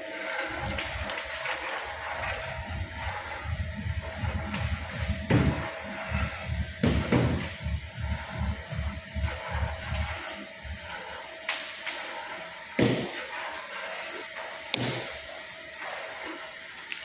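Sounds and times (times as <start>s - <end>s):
machine hum with faint whine: 0.0s - 17.0s
heavy thuds: 3.5s - 10.0s.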